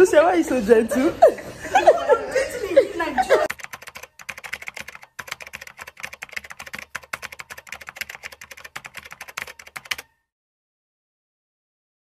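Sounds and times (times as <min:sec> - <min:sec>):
keyboard typing clicks: 0:03.5 - 0:10.2.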